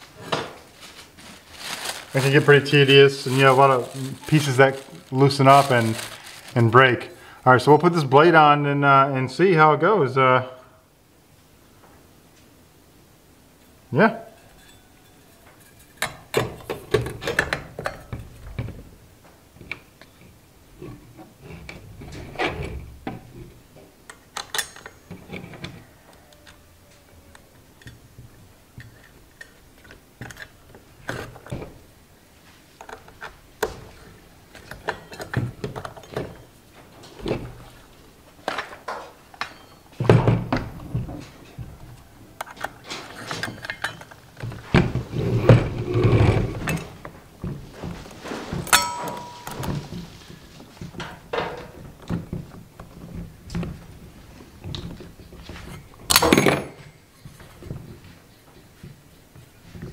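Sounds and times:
short metallic ring: 48.7 - 49.9.

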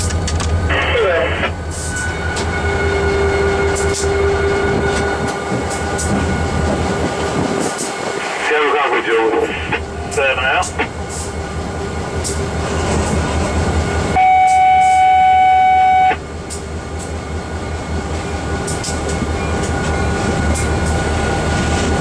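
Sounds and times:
locomotive engine rumble: 0.0 - 22.0
loud steady tone: 13.8 - 16.2.

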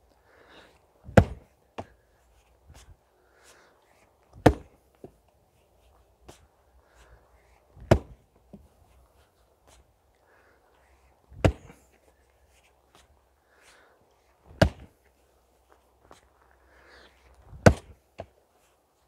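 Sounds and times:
splitting maul striking wood: 1.1 - 1.5, 4.4 - 4.8, 7.8 - 8.2, 11.4 - 11.8, 14.5 - 14.9, 17.5 - 18.0.

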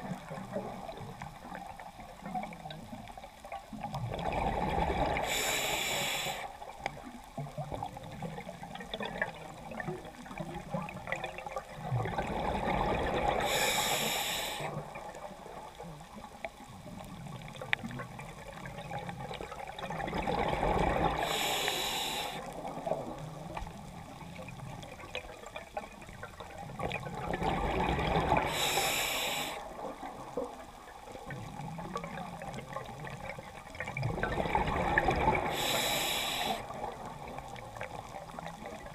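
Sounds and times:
regulator inhalation hiss: 5.2 - 6.6, 13.4 - 14.8, 21.2 - 22.6, 28.5 - 29.7, 35.5 - 36.7
bubbling exhalation underwater: 26.8 - 28.5, 33.9 - 35.9.

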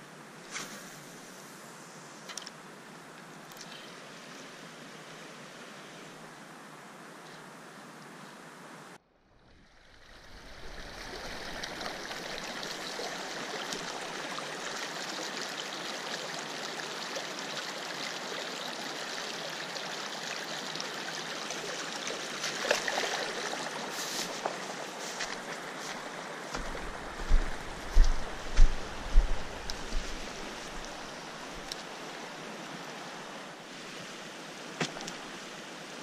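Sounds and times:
stream water rushing: 9.8 - 36.0
rustles and knocks: 26.5 - 30.9.

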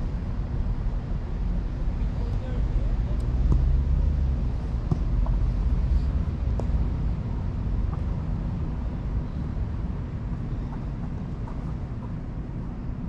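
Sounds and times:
low outdoor rumble: 0.0 - 13.0
faint ball kicks: 3.4 - 3.8, 4.8 - 5.4, 6.4 - 6.9.

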